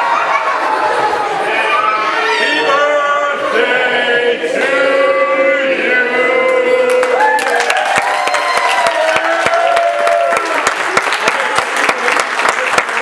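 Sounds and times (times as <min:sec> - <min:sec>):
crowd shouting and whooping: 0:00.0 - 0:03.5, 0:06.4 - 0:11.0
crowd clapping: 0:06.8 - 0:13.0.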